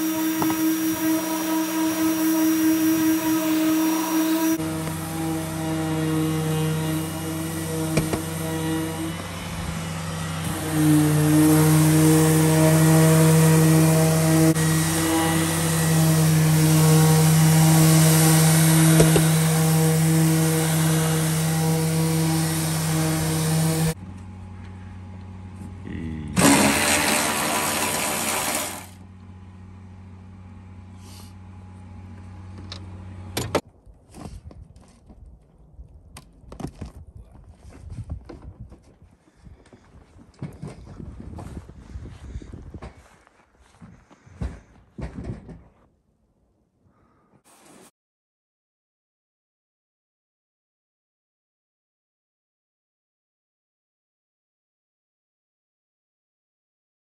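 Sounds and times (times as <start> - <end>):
orbital sander whirring on metal: 0.0 - 24.0, 26.4 - 29.0
dust extractor humming: 0.0 - 33.2.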